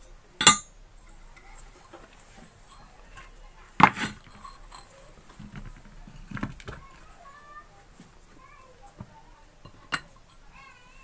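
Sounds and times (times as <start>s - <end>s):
metallic clanks with ringing: 0.4s - 0.8s.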